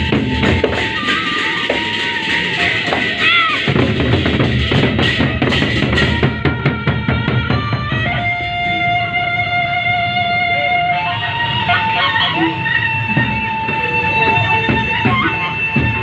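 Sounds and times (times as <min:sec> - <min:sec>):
hand cymbals clashing: 0:00.0 - 0:06.3
barrel drums beaten fast: 0:00.0 - 0:08.1.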